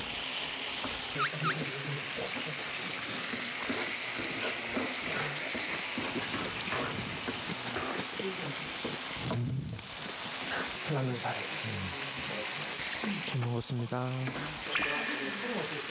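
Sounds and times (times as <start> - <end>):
food sizzling in a hot pan: 0.0 - 15.9
wooden spoon stirring: 2.3 - 9.2.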